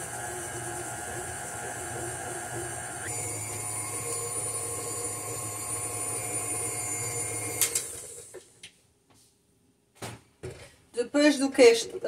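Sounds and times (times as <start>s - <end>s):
stand mixer running: 0.0s - 8.4s.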